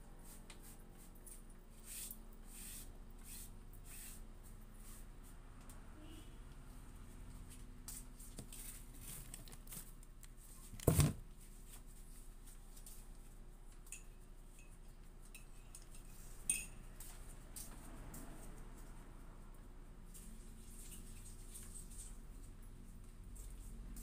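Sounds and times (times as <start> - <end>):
sharp ringing clink: 16.5 - 16.8.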